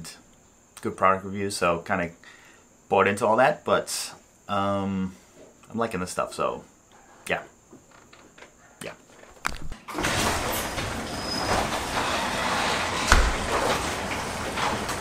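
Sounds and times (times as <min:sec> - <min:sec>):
garage door opener rattling: 0:09.8 - 0:15.0.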